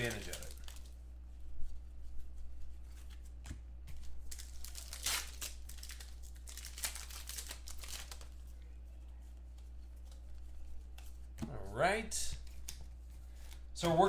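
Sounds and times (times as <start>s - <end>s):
wrapper crinkling and tearing: 0.0s - 1.0s, 4.0s - 8.4s.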